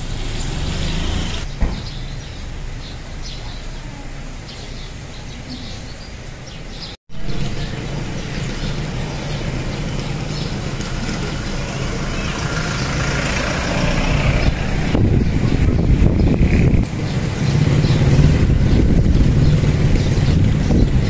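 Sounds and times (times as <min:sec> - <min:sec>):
traffic noise: 0:00.0 - 0:21.0
vehicle engine running: 0:07.2 - 0:21.0.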